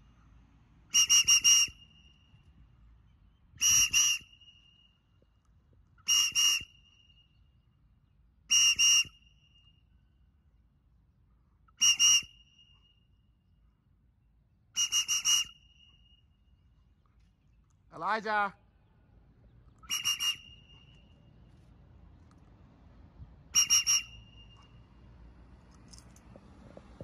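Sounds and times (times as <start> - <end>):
hand whistle toots: 0.9 - 2.5, 3.6 - 5.3, 6.0 - 7.4, 8.5 - 9.9, 11.7 - 13.2, 14.8 - 16.5, 19.8 - 21.3, 23.5 - 24.9.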